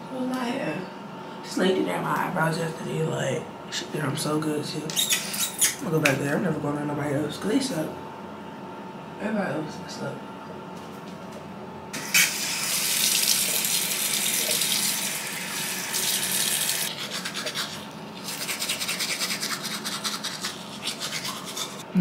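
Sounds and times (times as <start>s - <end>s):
sink tap running: 12.0s - 17.6s
toothbrush scrubbing teeth: 12.0s - 21.9s.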